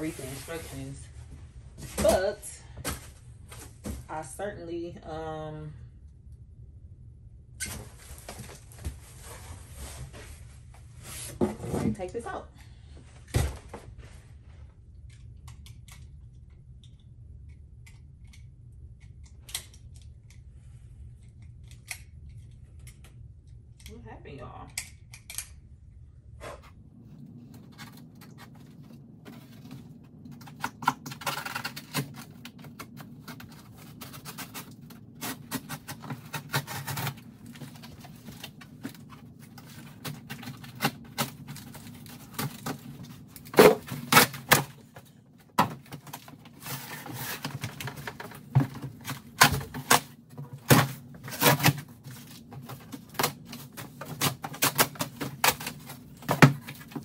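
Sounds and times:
cardboard and plastic wrap handled: 0.0 - 4.1, 7.7 - 12.0, 27.2 - 57.0
steady low hum: 0.0 - 57.0.

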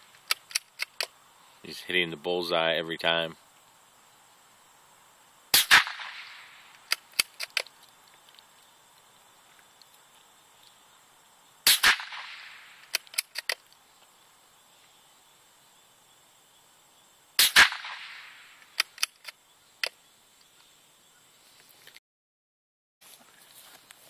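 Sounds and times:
rifle bolt metallic clicks: 0.2 - 1.1, 6.8 - 7.7, 12.8 - 13.7, 18.6 - 20.0
rifle shot with echo: 5.5 - 7.0, 11.6 - 13.0, 17.4 - 18.6.

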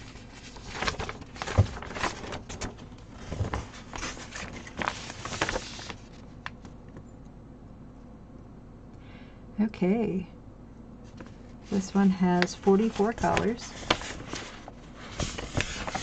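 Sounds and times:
paper and plastic crackling: 0.0 - 6.8, 12.4 - 16.0.

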